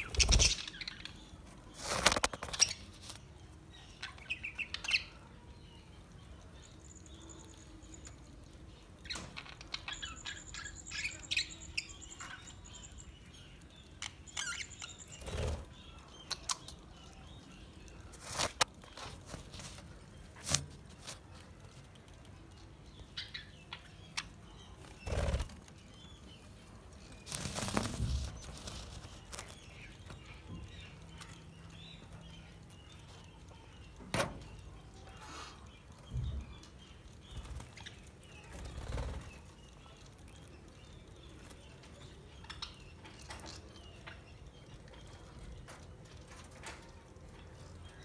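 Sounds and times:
wing flutters: 0.0s - 0.8s, 24.8s - 25.8s, 27.2s - 29.6s.

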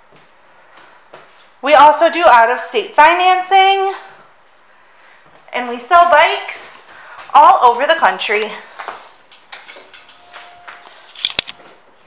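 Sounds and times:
handling noise: 9.3s - 12.0s.

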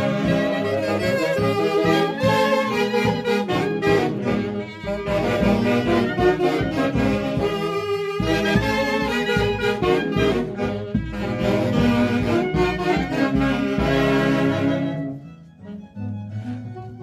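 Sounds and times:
clarinets and saxophones playing: 0.0s - 17.0s
bass drum beats: 1.4s - 14.8s.

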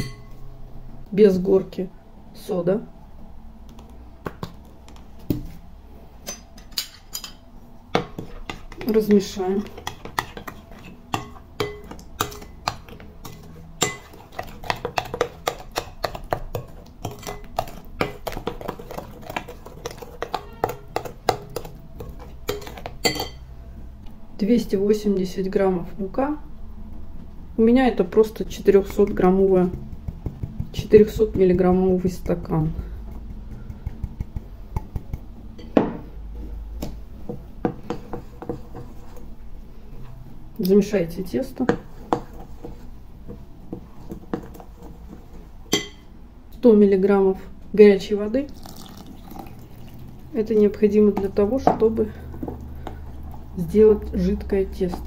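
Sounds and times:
spoon clinking in glass bowl: 0.0s - 0.4s, 22.5s - 23.4s, 45.7s - 46.1s.

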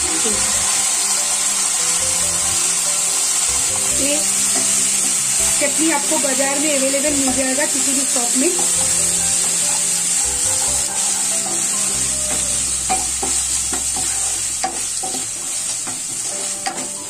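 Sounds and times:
onions sizzling in a pan: 0.0s - 17.0s
spatula scraping a pan: 8.5s - 17.0s.

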